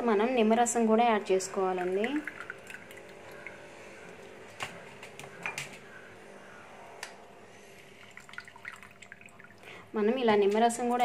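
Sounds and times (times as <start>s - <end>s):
low steady hum: 0.0s - 11.0s
liquid dripping: 1.6s - 4.4s, 7.8s - 9.8s.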